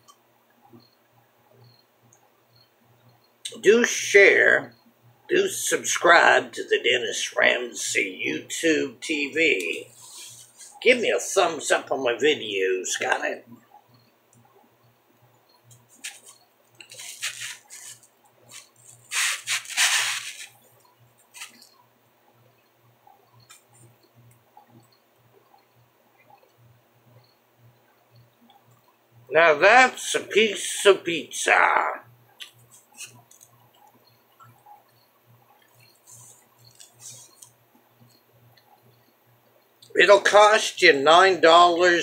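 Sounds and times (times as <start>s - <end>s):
soft hisses: 9.1s - 11.5s, 15.9s - 20.6s, 36.0s - 37.5s
biting into pizza crackle: 15.9s - 20.6s.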